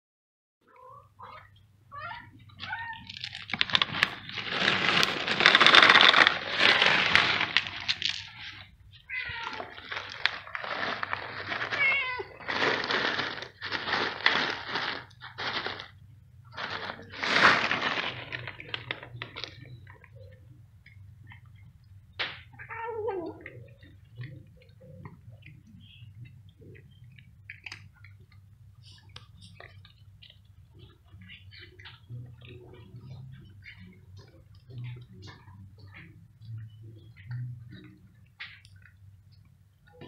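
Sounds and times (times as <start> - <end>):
cat meowing: 9.0 - 10.0, 11.7 - 12.5, 22.6 - 23.6.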